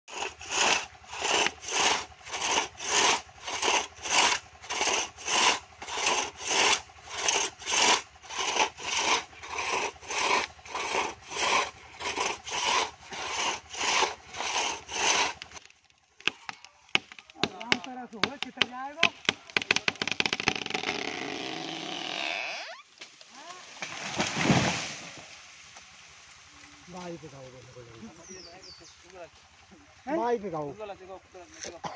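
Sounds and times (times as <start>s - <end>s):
crosscut saw rasping through wood: 0.1s - 22.3s.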